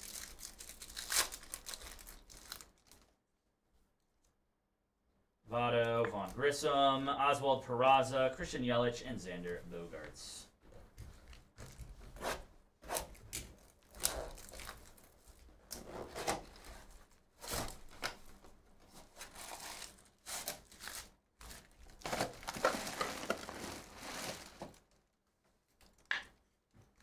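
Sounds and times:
cardboard and wrappers tearing: 0:00.0 - 0:03.1, 0:11.7 - 0:18.2, 0:19.0 - 0:24.8.

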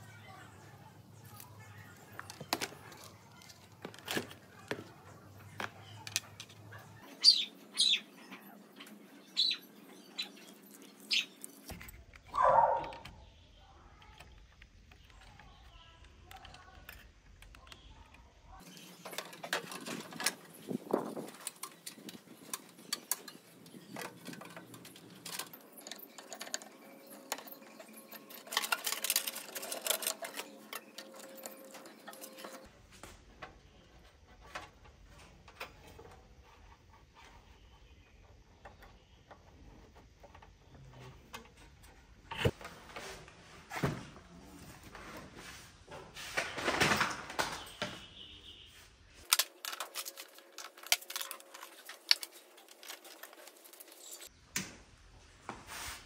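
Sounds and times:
computer parts clicking and rattling: 0:18.6 - 0:32.7, 0:49.2 - 0:54.3.

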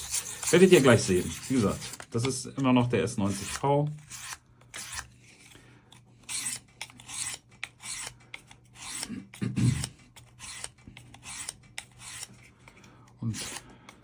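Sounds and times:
knife blade scraping sharpener: 0:00.0 - 0:02.1, 0:03.3 - 0:05.5, 0:06.2 - 0:12.5.

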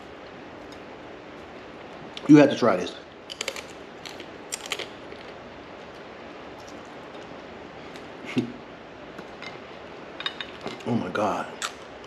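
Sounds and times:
steady background noise: 0:00.0 - 0:12.0
crab shell cracking: 0:03.3 - 0:05.4.

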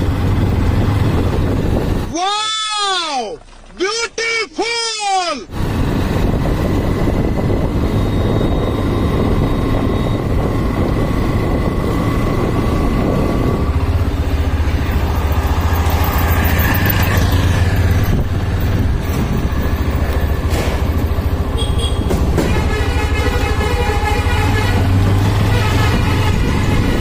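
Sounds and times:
motorcycle exhaust running: 0:06.1 - 0:27.0.

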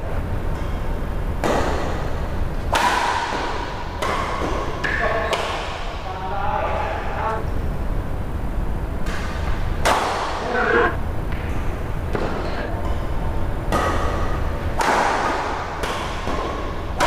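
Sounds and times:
rackets hitting shuttlecock: 0:01.4 - 0:05.8, 0:13.7 - 0:17.0.

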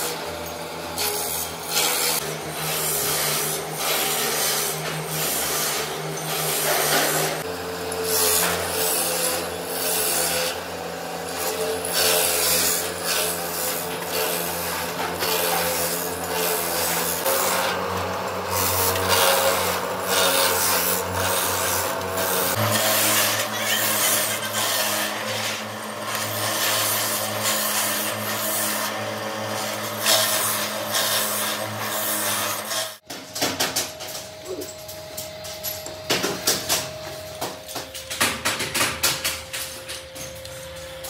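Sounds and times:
harsh rasping grinding: 0:01.0 - 0:33.0.

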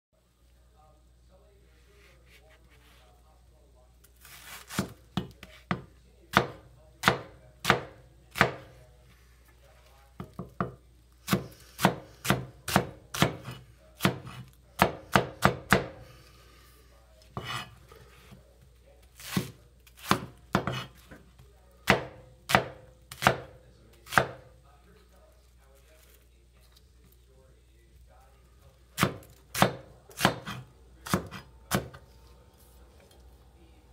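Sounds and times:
cleaver chopping on wooden board: 0:04.7 - 0:08.7, 0:10.2 - 0:16.0, 0:19.2 - 0:20.9, 0:21.9 - 0:24.4, 0:29.0 - 0:32.0.

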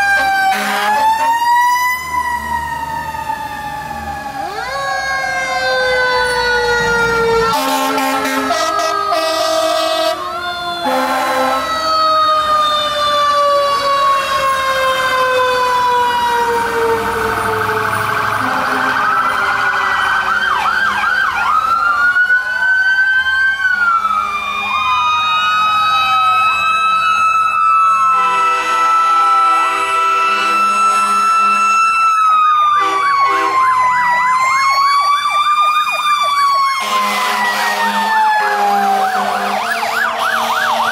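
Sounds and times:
electronic sirens wailing and yelping: 0:00.0 - 0:40.9
truck air horn: 0:00.2 - 0:01.4, 0:07.5 - 0:10.2, 0:10.8 - 0:11.8, 0:18.4 - 0:20.1, 0:28.2 - 0:32.0, 0:32.8 - 0:33.6, 0:36.8 - 0:39.7
mechanical siren winding down: 0:08.2 - 0:28.3.

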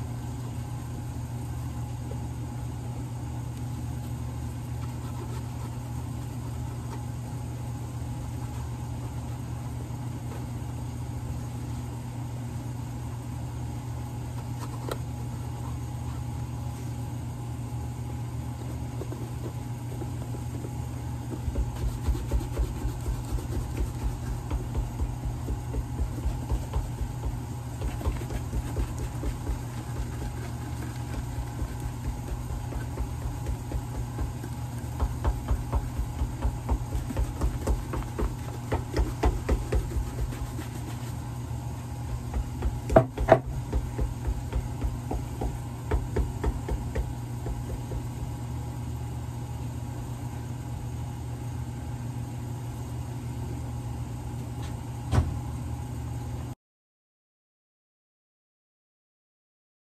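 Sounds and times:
shop machinery motor hum: 0:05.4 - 0:52.0
brush stroking leather shoe: 0:21.3 - 0:36.2, 0:36.8 - 0:41.2.

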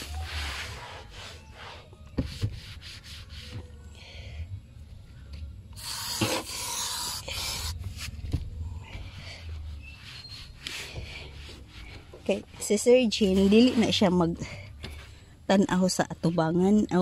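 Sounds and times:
rubbing and wiping a surface: 0:00.0 - 0:03.7, 0:09.0 - 0:14.2.

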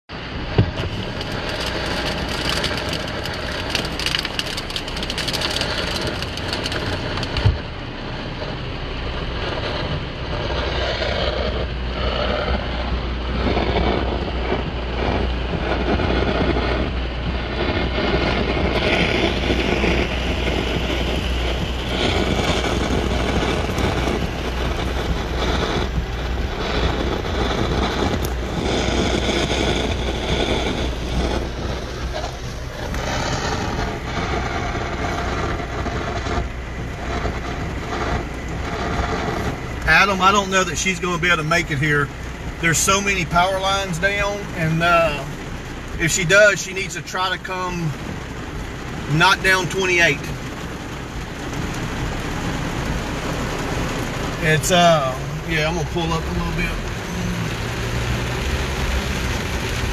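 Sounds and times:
road and wind noise in car: 0:00.0 - 0:59.9
thump: 0:00.6 - 0:00.8.

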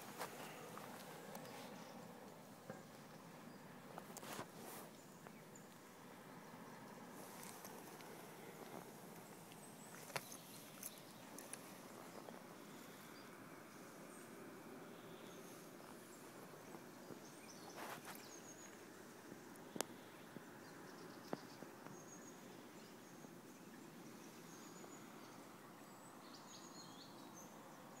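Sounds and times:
faint hiss: 0:00.0 - 0:28.0
brief rustle: 0:04.0 - 0:05.0, 0:17.6 - 0:18.6.

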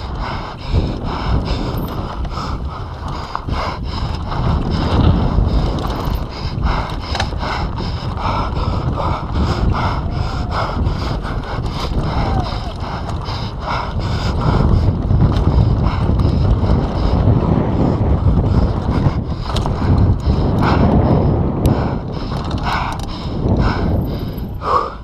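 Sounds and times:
wind buffeting microphone: 0:00.0 - 0:25.0
bike clattering over bumps: 0:00.1 - 0:10.2, 0:10.8 - 0:24.7
tyre noise on dirt: 0:01.0 - 0:10.0.

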